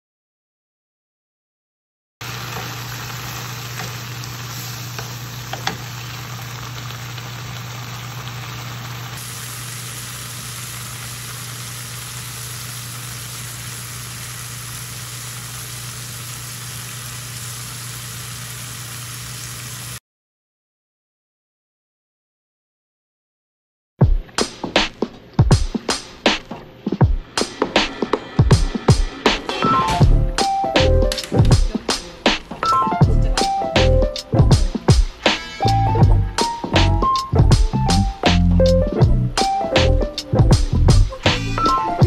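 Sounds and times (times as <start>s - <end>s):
peas sizzling in a frying pan: 2.2s - 20.0s.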